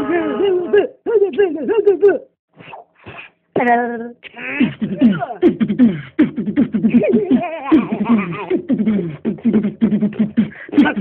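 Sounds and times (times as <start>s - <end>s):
person making rhythmic mouth sounds: 4.3s - 11.0s.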